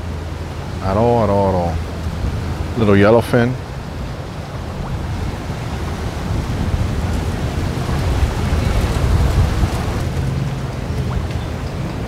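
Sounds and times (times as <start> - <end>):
outboard motor rumble: 0.0 - 12.0
wind noise: 0.0 - 12.0.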